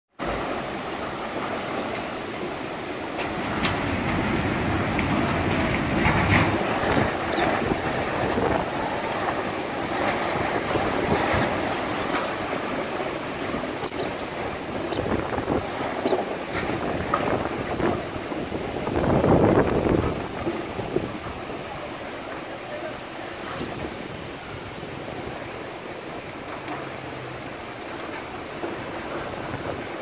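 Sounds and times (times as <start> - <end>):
heavy rain: 0.1 - 30.0
storm wind through trees: 0.2 - 30.0
wind buffeting microphone: 3.2 - 22.4, 23.4 - 26.4.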